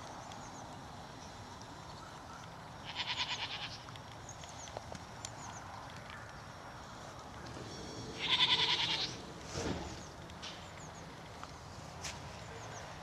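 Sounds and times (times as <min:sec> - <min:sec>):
goat bleating: 0:02.8 - 0:03.8, 0:08.2 - 0:09.2.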